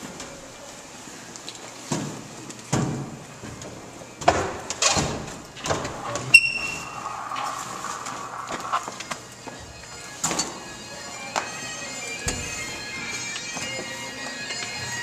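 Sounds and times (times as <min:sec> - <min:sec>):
short high beep: 0:06.3 - 0:07.0
steady droning tone: 0:06.8 - 0:15.0.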